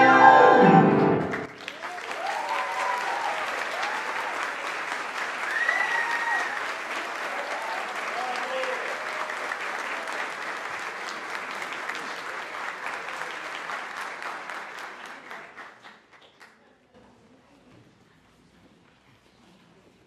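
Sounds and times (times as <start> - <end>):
audience applauding: 0.0 - 16.6.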